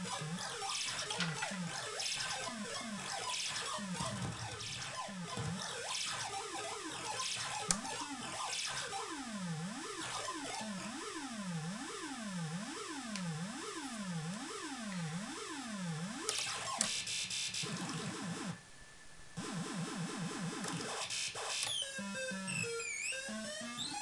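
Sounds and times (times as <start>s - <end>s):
harsh synthesizer buzzing chatter: 0.0s - 16.8s.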